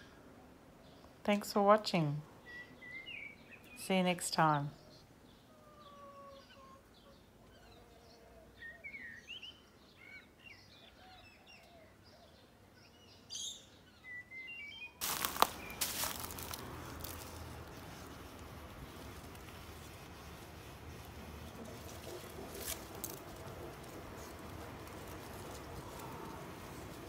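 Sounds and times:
small birds chirping: 2.4s - 27.0s
steady hiss of noise: 15.0s - 27.0s.

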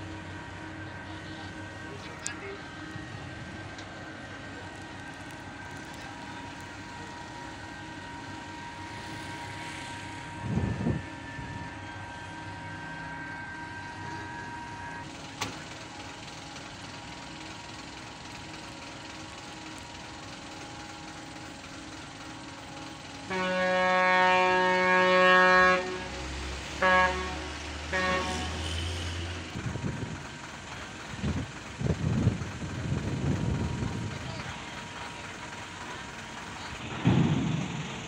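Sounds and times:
ship machinery humming: 0.0s - 38.0s
ship horn: 5.5s - 15.1s, 20.8s - 29.8s.

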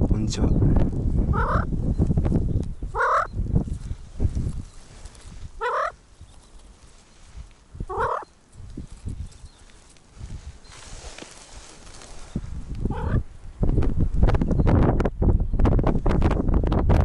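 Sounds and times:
bird giving throaty calls: 1.3s - 1.7s, 2.9s - 3.4s, 5.6s - 6.0s, 7.8s - 8.3s, 12.8s - 13.3s.

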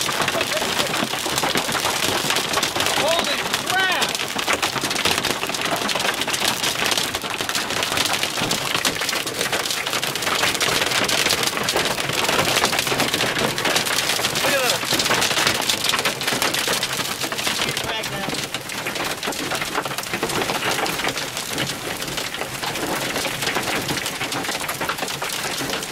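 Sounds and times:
hail clattering on vehicle roof: 0.0s - 25.9s.

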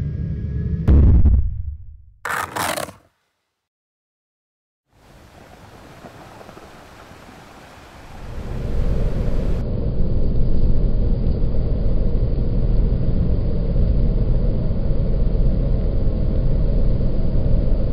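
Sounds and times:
rocket engine rumble: 8.1s - 17.9s.

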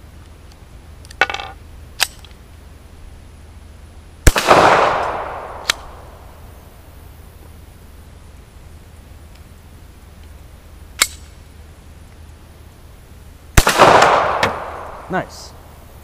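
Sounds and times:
sharp metallic clicks: 2.0s - 2.4s, 5.0s - 6.0s
pistol shot echoing: 4.3s - 6.4s, 13.6s - 15.6s.

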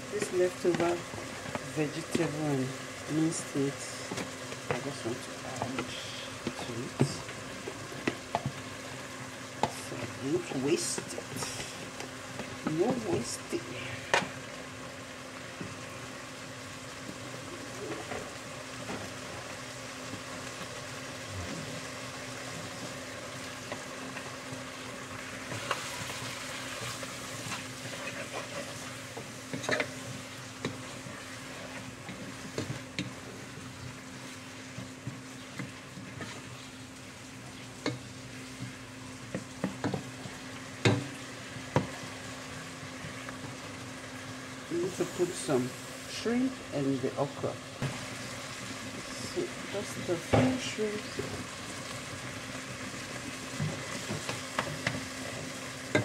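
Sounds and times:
food sizzling: 0.0s - 56.0s
wooden spoon scraping a pot: 25.5s - 36.8s.

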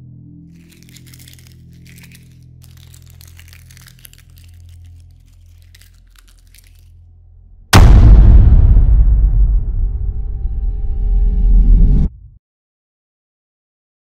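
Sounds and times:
low droning music: 0.0s - 12.1s
sticky crackling: 0.6s - 7.0s
loud boom: 7.7s - 12.2s.

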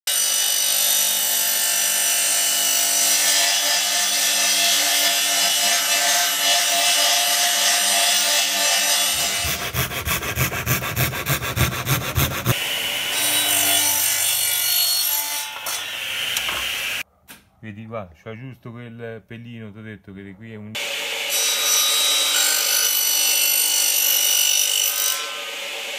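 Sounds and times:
table saw cutting wood: 0.1s - 17.0s, 20.8s - 25.9s
rapid pulsing: 9.4s - 12.5s.

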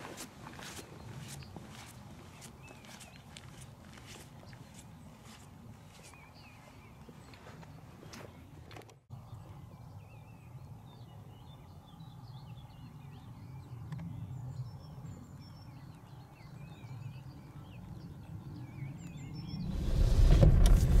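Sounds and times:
songbirds singing: 0.6s - 20.4s
low steady rumble: 19.6s - 21.0s.

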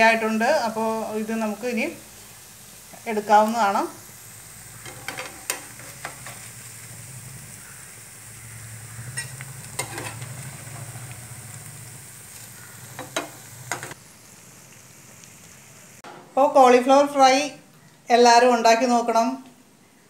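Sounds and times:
battered vegetables sizzling in oil: 0.0s - 17.4s
metal strainer clinking and scraping: 9.2s - 10.4s.

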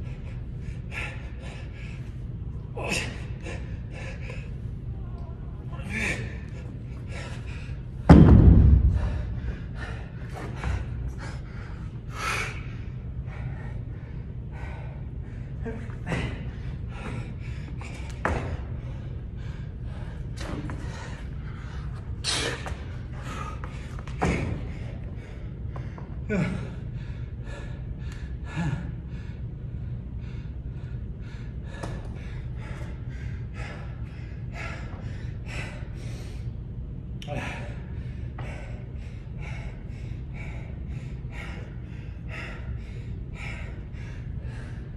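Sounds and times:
man breathing heavily: 0.0s - 44.9s
steady low hum: 0.0s - 44.9s
dumbbells thudding on rubber floor: 8.0s - 9.2s.

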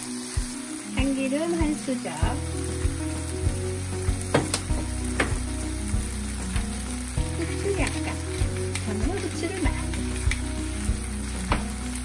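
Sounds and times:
food sizzling in frying pan: 0.0s - 12.0s
spatula stirring: 6.6s - 12.0s.

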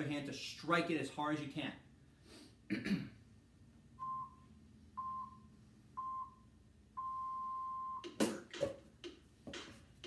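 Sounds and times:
timer beeps: 4.0s - 4.4s, 5.0s - 6.4s, 7.0s - 8.2s.

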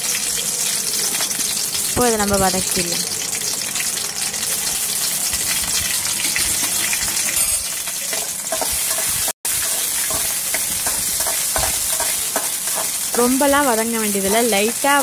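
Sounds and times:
chillies sizzling in hot oil: 0.0s - 15.0s
spatula scraping a pan: 5.8s - 13.3s.

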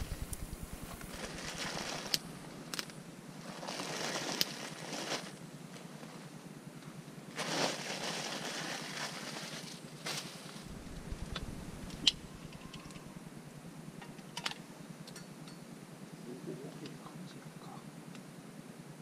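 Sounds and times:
low rumble: 0.0s - 2.7s, 10.6s - 14.0s.

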